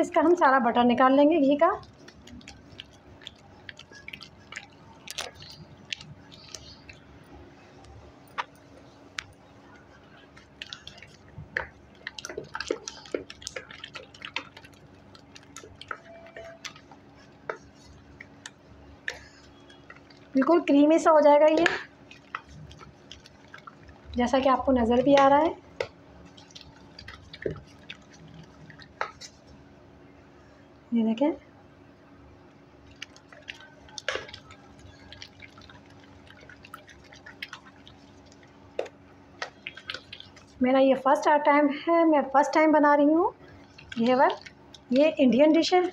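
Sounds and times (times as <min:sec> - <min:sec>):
drips: 0:01.5 - 0:29.6, 0:32.7 - 0:41.3, 0:43.4 - 0:45.9
wet squelching smacks: 0:01.8 - 0:07.1, 0:10.4 - 0:20.4, 0:21.5 - 0:29.4, 0:32.9 - 0:40.6, 0:43.6 - 0:45.9.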